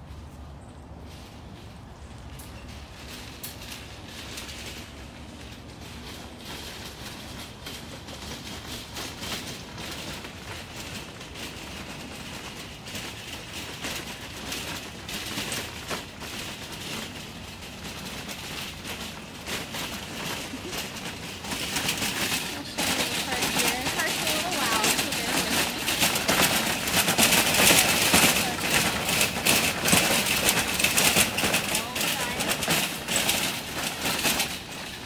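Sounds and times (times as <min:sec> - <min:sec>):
footsteps crunching on gravel: 0:14.3 - 0:35.0.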